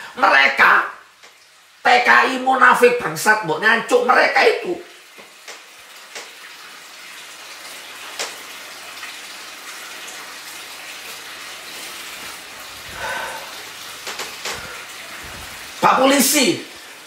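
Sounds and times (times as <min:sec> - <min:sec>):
steady rushing hiss: 0:12.1 - 0:17.0.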